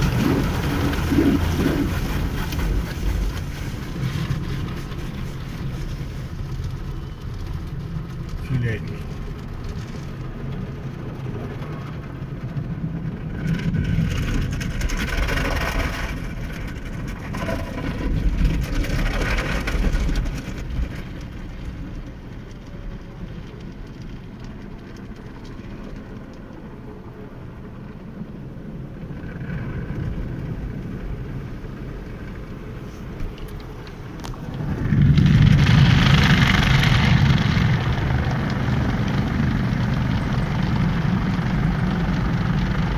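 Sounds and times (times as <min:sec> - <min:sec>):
car-wash brushes scrubbing: 0:00.0 - 0:06.6
water spray on car: 0:00.0 - 0:10.9.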